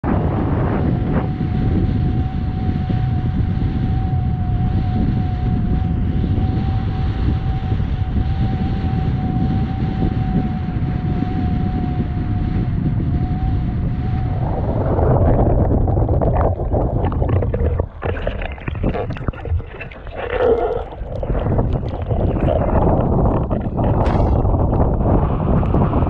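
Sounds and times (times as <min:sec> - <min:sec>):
wind buffeting microphone: 0:00.0 - 0:26.0
water rushing: 0:14.7 - 0:25.1.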